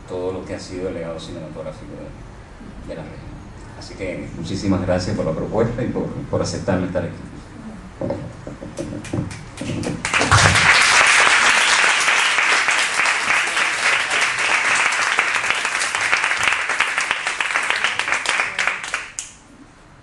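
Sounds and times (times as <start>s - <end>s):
audience applauding: 9.3s - 19.4s.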